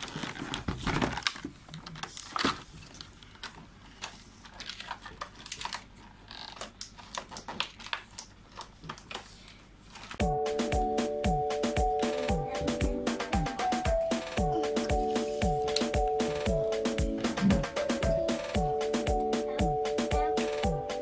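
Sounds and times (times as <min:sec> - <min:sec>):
toy packaging crinkling and clicking: 0:00.0 - 0:10.2
music: 0:10.2 - 0:21.0.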